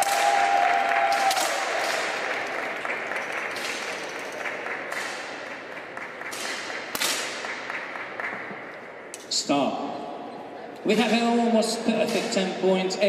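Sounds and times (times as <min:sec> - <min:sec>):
applause: 0:00.0 - 0:06.8, 0:07.5 - 0:08.5
air pistol shots: 0:04.9 - 0:05.4, 0:06.3 - 0:07.7, 0:12.0 - 0:12.6.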